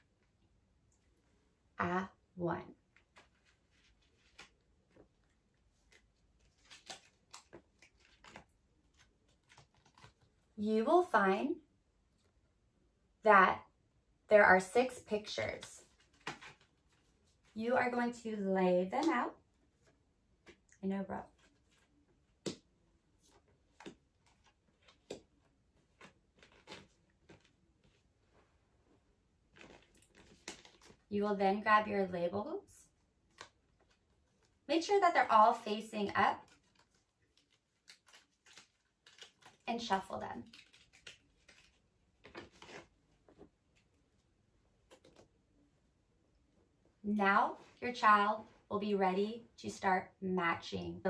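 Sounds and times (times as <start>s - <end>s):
cards clicking and rustling: 3.0s - 10.3s, 15.4s - 17.1s, 21.3s - 28.0s, 29.5s - 31.1s, 36.4s - 43.9s, 44.8s - 45.3s.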